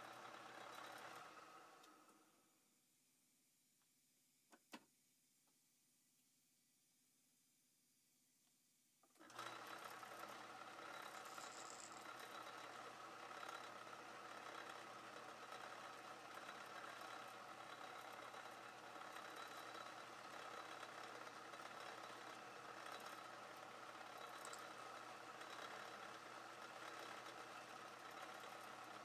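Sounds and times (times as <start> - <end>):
lathe running: 9.2 - 29.0
drill cutting spinning metal: 9.4 - 29.0.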